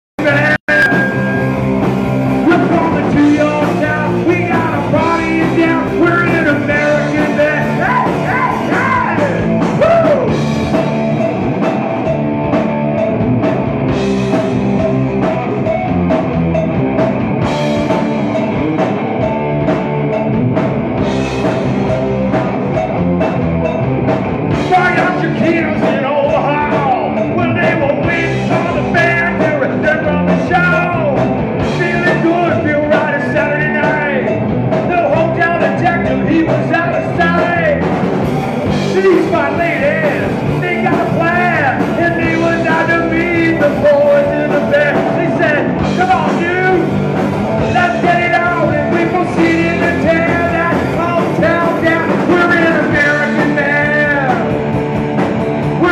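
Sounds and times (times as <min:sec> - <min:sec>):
man singing: 0:00.2 - 0:01.4, 0:02.4 - 0:10.4, 0:24.6 - 0:37.9, 0:38.7 - 0:54.6
live rock band playing: 0:00.2 - 0:55.9.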